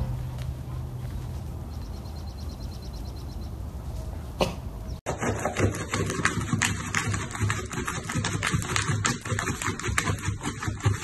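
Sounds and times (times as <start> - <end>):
puppy claws scratching cardboard: 5.1 - 11.0.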